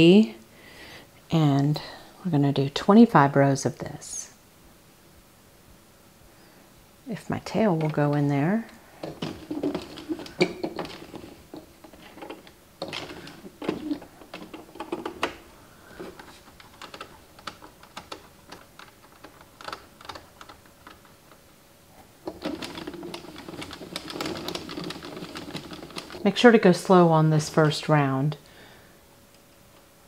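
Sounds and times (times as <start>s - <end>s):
knitting machine rapid clicking: 9.0s - 21.2s, 22.2s - 26.5s.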